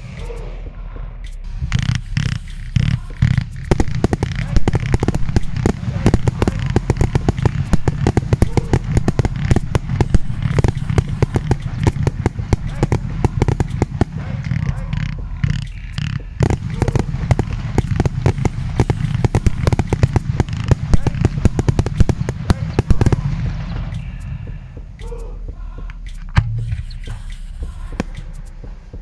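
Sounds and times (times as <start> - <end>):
firework cracks and crackling: 1.5 - 24.1.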